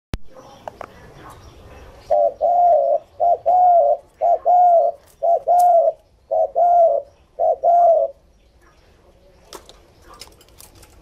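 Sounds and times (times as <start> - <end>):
dove cooing: 1.0 - 8.3.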